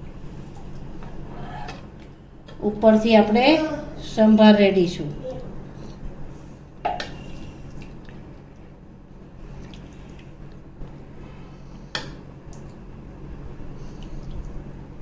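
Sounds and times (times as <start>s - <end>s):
liquid dripping and squelching: 6.9s - 8.8s, 9.4s - 10.9s, 12.0s - 12.9s, 13.8s - 14.6s.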